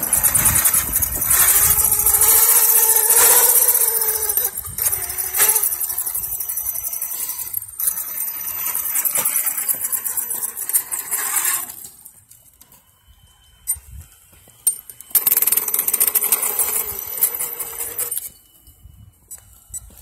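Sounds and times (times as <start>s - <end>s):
electric motor whine: 0.0s - 12.1s, 13.8s - 18.5s
tyres rolling on concrete: 0.0s - 12.8s.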